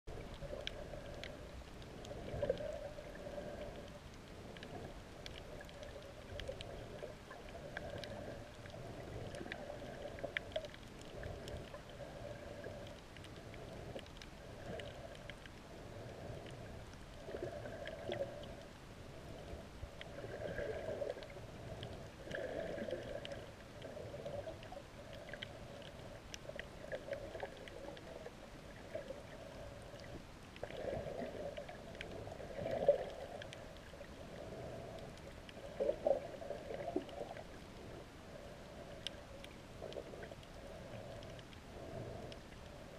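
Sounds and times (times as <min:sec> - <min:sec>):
faint clicks: 0:00.1 - 0:42.9
muffled underwater seawater: 0:00.1 - 0:42.9.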